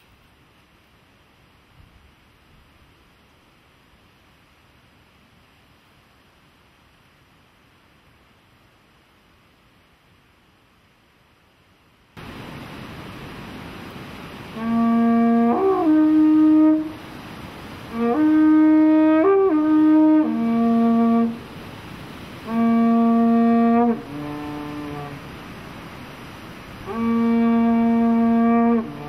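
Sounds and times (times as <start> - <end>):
steady hiss: 0.0 - 29.0
war trumpet blasts: 14.5 - 21.7, 22.3 - 25.7, 26.7 - 29.0.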